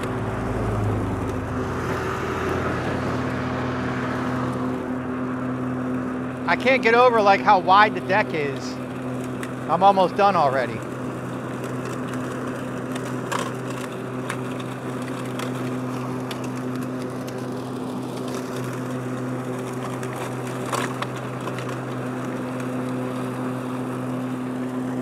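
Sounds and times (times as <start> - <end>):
electric mower humming: 0.0 - 25.0
leaves crackling: 6.3 - 25.0.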